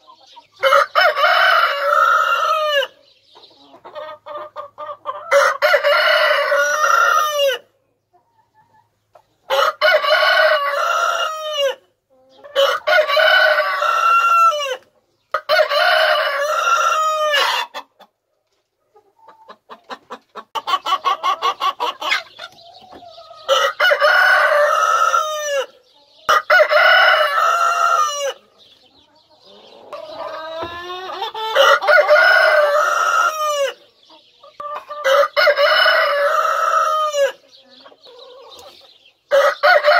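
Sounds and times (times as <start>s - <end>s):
rooster crowing: 5.3s - 7.6s, 31.5s - 33.8s, 39.3s - 39.9s.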